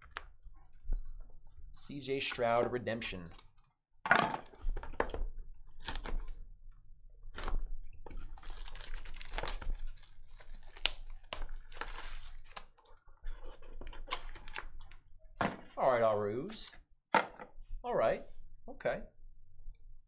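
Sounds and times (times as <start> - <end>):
plastic shrink wrap crinkling and tearing: 7.3 - 15.0.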